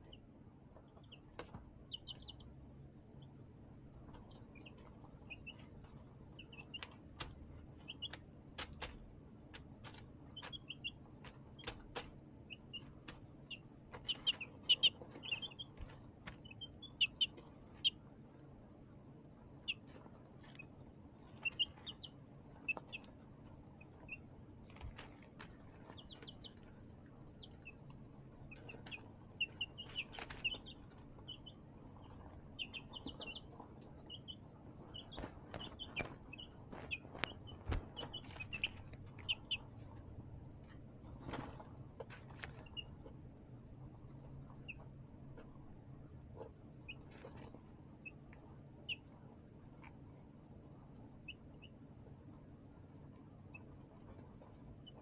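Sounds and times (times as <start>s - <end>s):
baby chicks peeping: 0.0s - 55.0s.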